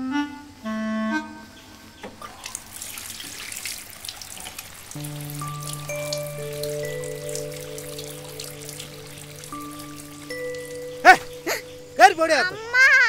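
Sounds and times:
woodwind note: 0.0s - 1.9s, 5.0s - 12.0s
soft trickling ticks: 2.0s - 12.4s
held low chord: 4.8s - 12.7s.

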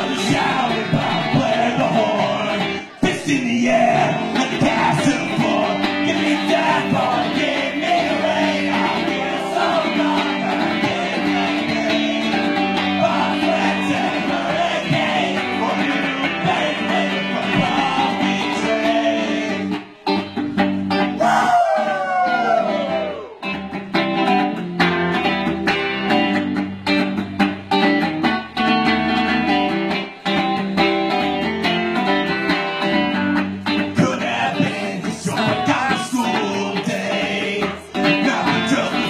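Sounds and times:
person singing: 0.0s - 20.1s, 33.0s - 39.0s
amplified electric guitar: 0.0s - 39.0s.

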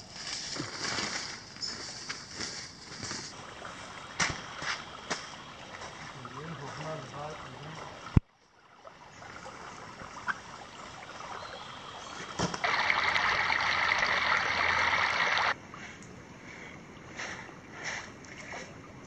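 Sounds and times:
creek water running over rocks: 3.0s - 15.6s
loud rush of water: 12.6s - 15.6s.

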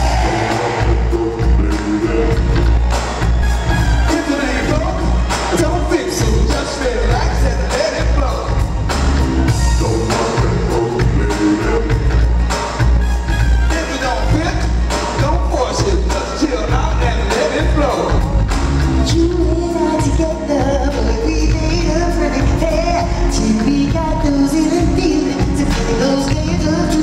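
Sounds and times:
lead vocal singing: 0.0s - 12.8s, 13.7s - 27.0s
live funk band playing: 0.0s - 27.0s.

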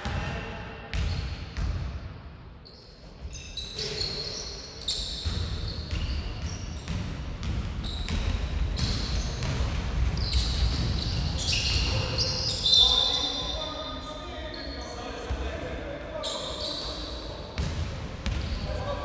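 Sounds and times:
shoes squeaking on gym floor: 2.6s - 6.9s, 10.2s - 13.6s.

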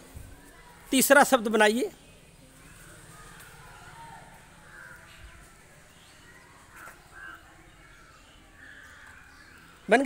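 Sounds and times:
faint crow cawing: 2.6s - 9.6s.

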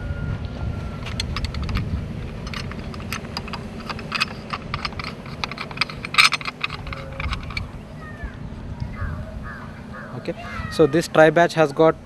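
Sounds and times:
steady low rumble: 0.0s - 10.8s
metal clicks and rattles: 1.0s - 7.7s.

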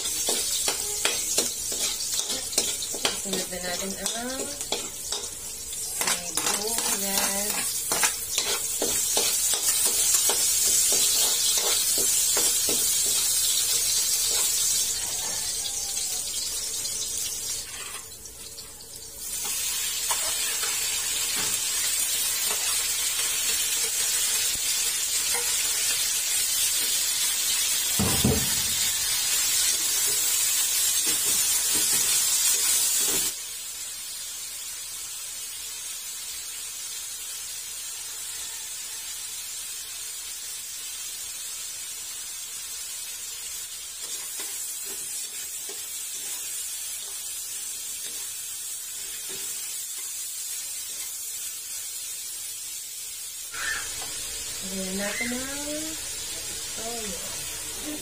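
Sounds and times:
metal ladle scraping a pan: 0.0s - 5.3s, 5.9s - 14.8s, 17.5s - 18.2s
garlic and onion sizzling in oil: 0.0s - 58.0s.

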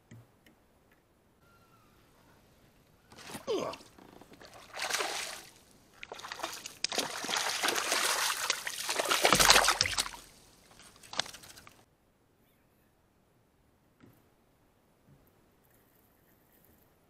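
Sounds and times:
fish splashing in water: 4.4s - 11.8s.

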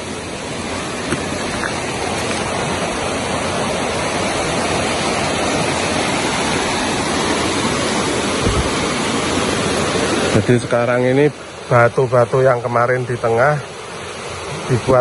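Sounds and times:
river floodwater rushing: 0.0s - 15.0s.

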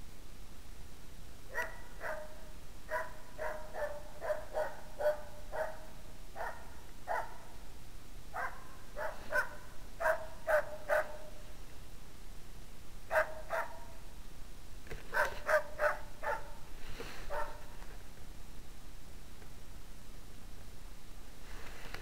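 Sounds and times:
dog barking sharply: 1.5s - 7.4s, 8.4s - 11.3s, 13.1s - 13.8s, 15.1s - 16.6s, 17.3s - 17.6s.

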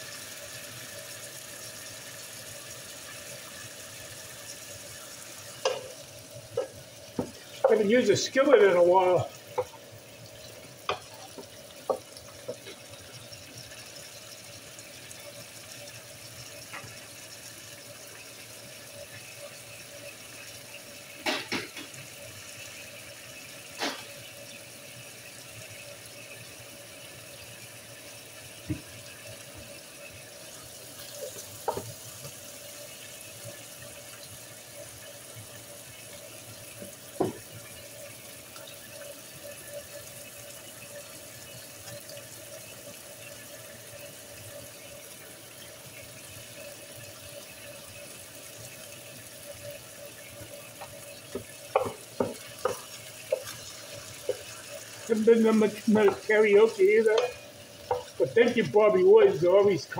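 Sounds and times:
chicken sizzling in oil: 0.0s - 59.9s.

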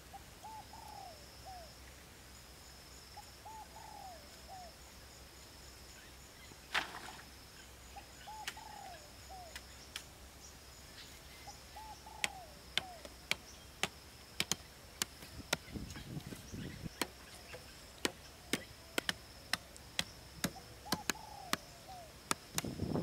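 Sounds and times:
machete chopping wood: 12.2s - 15.8s, 16.9s - 21.7s, 22.3s - 22.9s.

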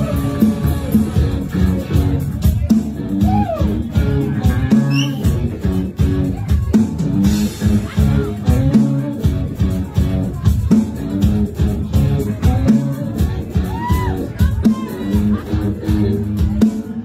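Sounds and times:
drum kit beat: 0.0s - 17.0s
electric bass: 0.0s - 17.0s
electric guitar: 0.0s - 17.0s.

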